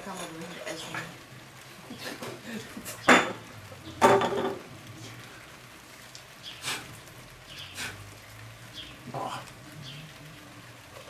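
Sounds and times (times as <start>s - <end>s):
plates and cutlery clattering: 2.1s - 3.4s, 4.0s - 4.7s.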